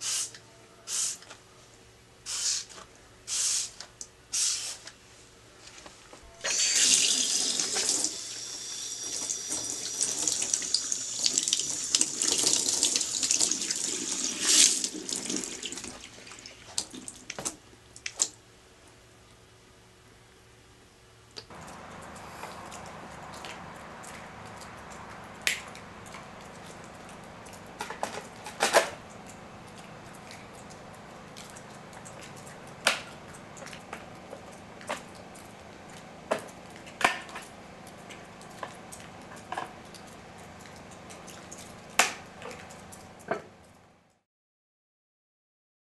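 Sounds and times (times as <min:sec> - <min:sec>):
steady background noise: 0:15.8 - 0:44.2.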